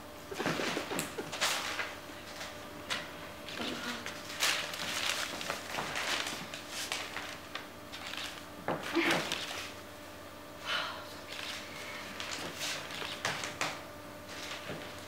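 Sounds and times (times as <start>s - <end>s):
newspaper rustling and crinkling: 0.4s - 9.8s, 11.3s - 15.0s.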